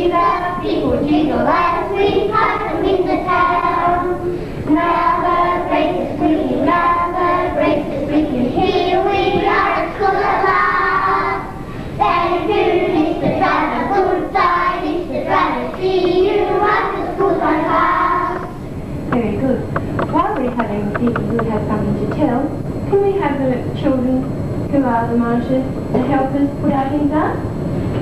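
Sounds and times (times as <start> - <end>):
children singing in unison: 0.0 - 18.6.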